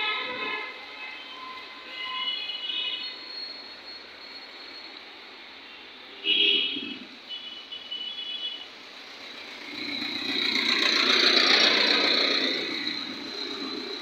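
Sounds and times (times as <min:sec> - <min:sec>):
passing vehicle: 0:08.8 - 0:14.0.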